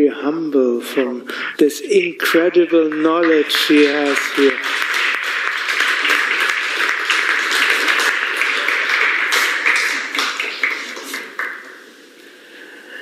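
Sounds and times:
audience applauding: 0:02.3 - 0:12.0.

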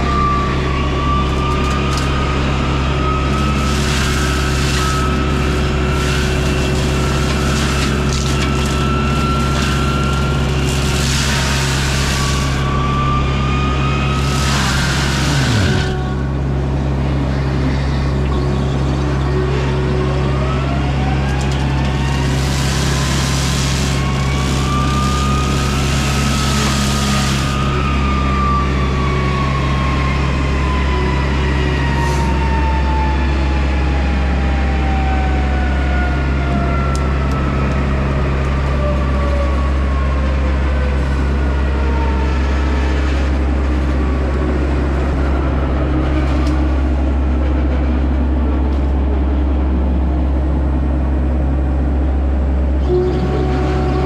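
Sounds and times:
mulcher head whining: 0:00.0 - 0:30.9
excavator running: 0:00.0 - 0:54.0
brush being shredded: 0:03.4 - 0:12.7, 0:14.2 - 0:16.0, 0:22.0 - 0:27.6.

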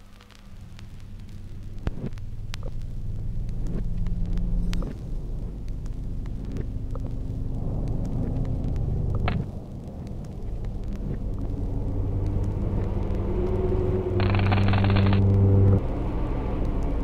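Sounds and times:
low rumble with humming tones: 0:00.0 - 0:17.0
rising streak: 0:03.6 - 0:17.0.

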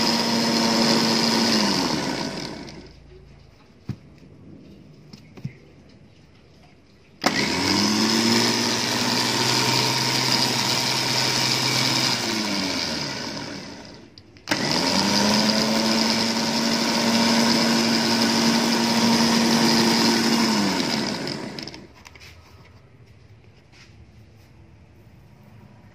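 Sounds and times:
electric winch whining: 0:00.0 - 0:02.9, 0:07.2 - 0:21.9.

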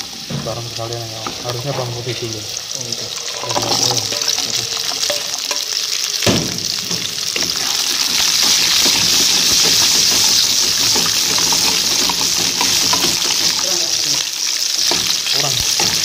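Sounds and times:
oil sizzling in a wok: 0:00.0 - 0:16.0
wooden spatula stirring: 0:03.1 - 0:05.8, 0:07.4 - 0:13.8
knock: 0:06.2 - 0:07.6.

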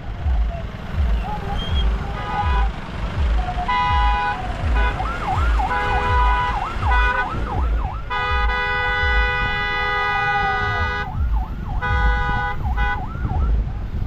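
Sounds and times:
car horns honking: 0:00.8 - 0:13.5
siren wailing: 0:03.3 - 0:09.2, 0:10.0 - 0:13.6.

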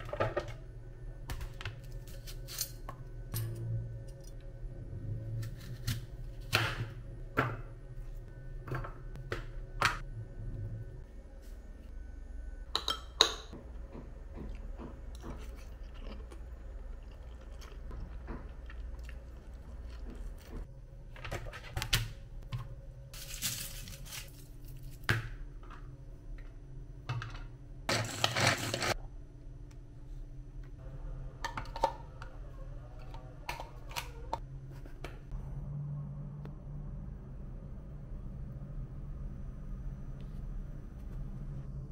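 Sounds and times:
bowls and containers clicking: 0:33.0 - 0:34.4.

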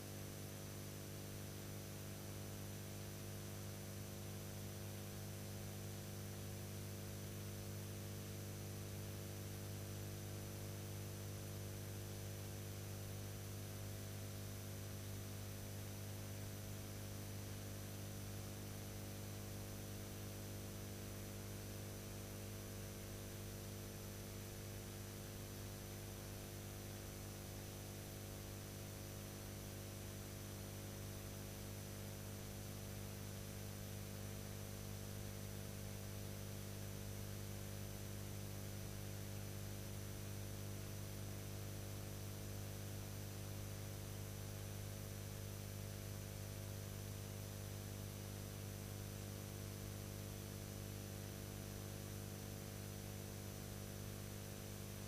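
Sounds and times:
electrical mains hum: 0:00.0 - 0:00.6.

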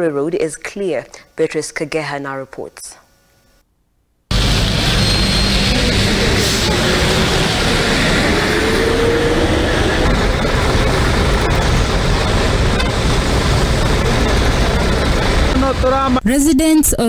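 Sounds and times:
highway traffic noise: 0:04.3 - 0:16.2.

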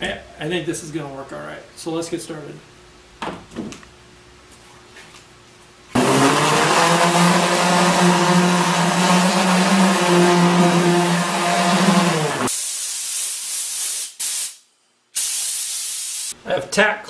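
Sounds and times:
orbital sander sanding wood: 0:06.0 - 0:12.5.

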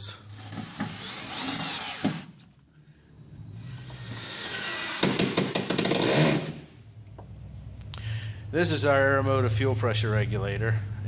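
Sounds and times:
cordless driver running: 0:00.3 - 0:02.3.

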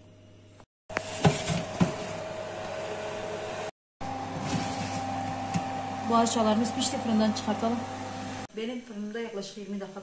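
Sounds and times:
oven fan whirring and humming: 0:01.0 - 0:08.5.

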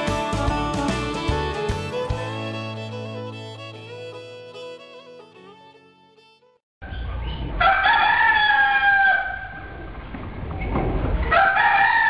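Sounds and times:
rooster crowing: 0:07.6 - 0:09.6, 0:11.3 - 0:12.0.

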